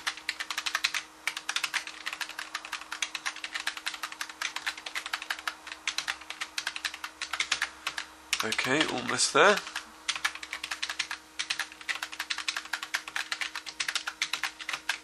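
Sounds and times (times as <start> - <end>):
computer keyboard keystrokes clicking: 0.0 - 15.0.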